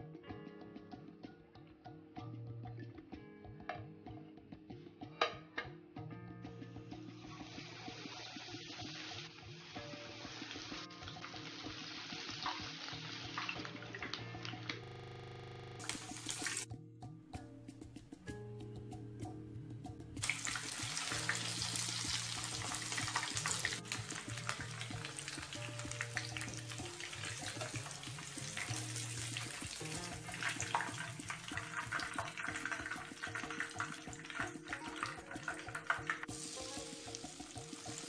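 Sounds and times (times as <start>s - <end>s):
soft background music: 0.0s - 38.0s
deep-frying sizzle in oil: 7.2s - 14.6s, 15.8s - 16.7s, 20.2s - 38.0s.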